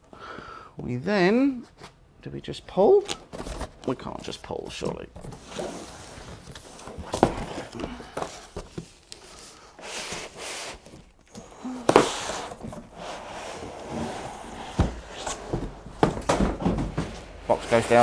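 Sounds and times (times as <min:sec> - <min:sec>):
foam scraping against cardboard: 0:11.9 - 0:15.4.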